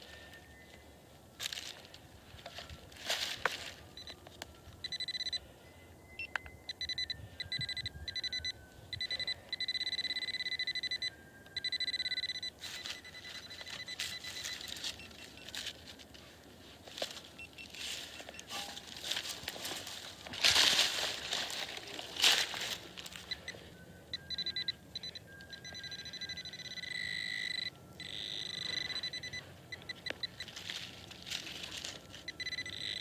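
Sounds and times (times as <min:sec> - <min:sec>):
rustling leaves and soil: 0:00.0 - 0:05.7, 0:12.6 - 0:23.8, 0:28.9 - 0:32.8
metal detector beeping: 0:00.0 - 0:16.4, 0:17.0 - 0:33.0.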